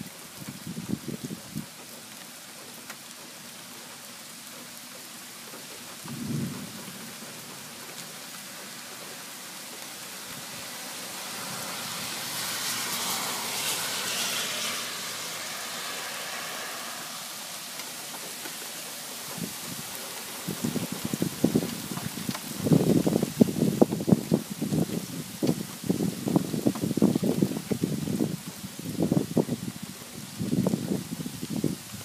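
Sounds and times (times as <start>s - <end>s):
steady rain falling: 0.0s - 32.0s
low rumble of thunder: 6.0s - 9.0s.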